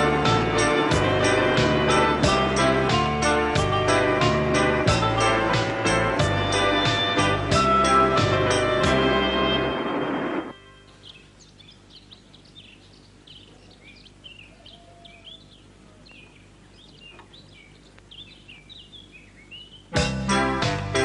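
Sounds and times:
small birds chirping: 10.6 - 20.7.

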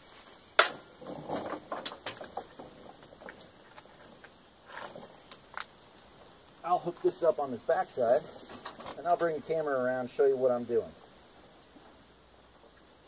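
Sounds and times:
steel chain clinking and rattling: 0.0 - 5.8, 7.7 - 9.8.

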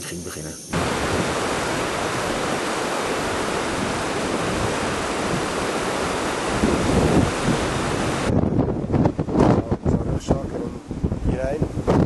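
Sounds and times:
river rushing: 0.7 - 9.3
wind buffeting microphone: 0.7 - 12.0.

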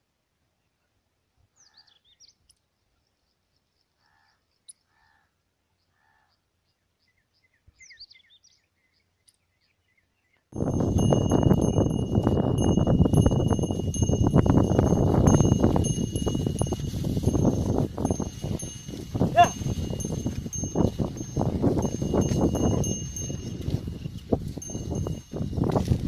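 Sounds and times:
faint bird chirps: 0.6 - 10.5
neck bells jingling: 10.6 - 26.0.

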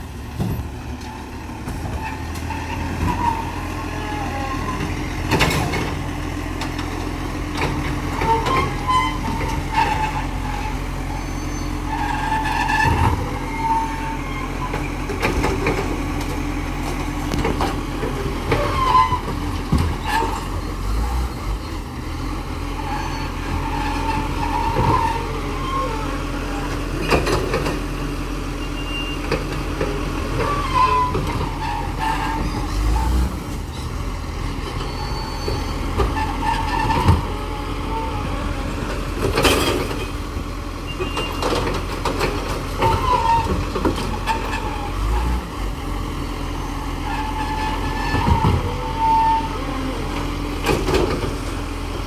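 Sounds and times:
diesel truck engine running: 0.0 - 52.0
hydraulic arm squeaks: 8.1 - 15.0, 18.5 - 21.8, 22.8 - 26.2, 28.6 - 29.3, 30.4 - 33.9, 34.7 - 38.4, 40.8 - 41.7, 42.8 - 45.3, 46.5 - 49.9.

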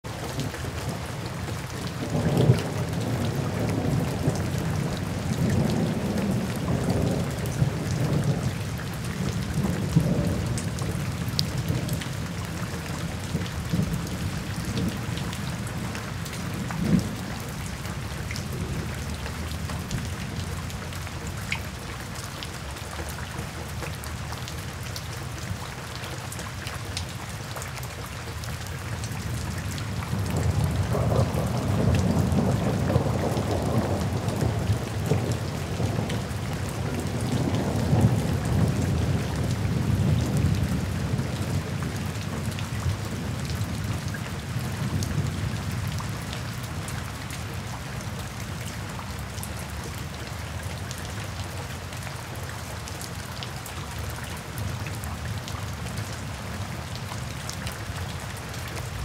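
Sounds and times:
rain falling: 0.0 - 59.0
low rolling thunder: 1.7 - 12.6, 30.1 - 46.0.

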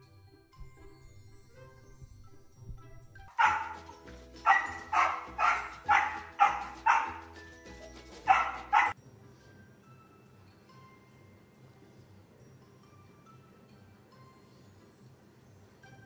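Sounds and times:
dog barking: 3.3 - 3.8, 4.4 - 7.3, 8.2 - 9.0.

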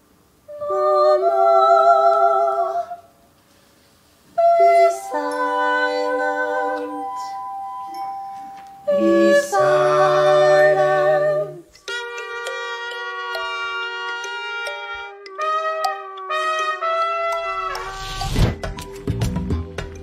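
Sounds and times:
women singing a cappella harmony: 0.5 - 3.2, 4.3 - 7.8, 8.8 - 11.8.

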